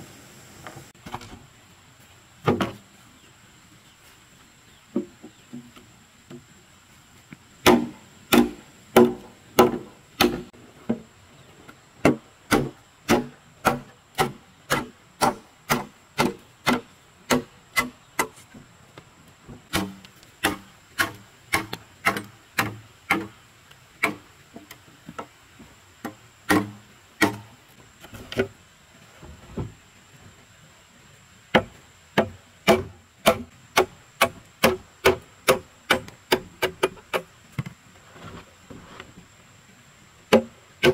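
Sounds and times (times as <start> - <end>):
machete chopping bamboo: 7.6 - 10.5, 12.0 - 18.4, 19.7 - 23.4, 24.0 - 24.2, 26.0 - 27.5, 31.5 - 37.3, 40.3 - 40.9.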